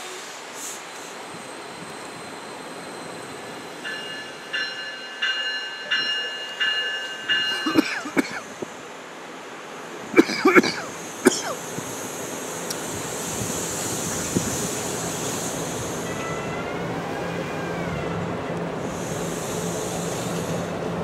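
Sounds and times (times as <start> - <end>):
steady background noise: 0.0 - 16.1.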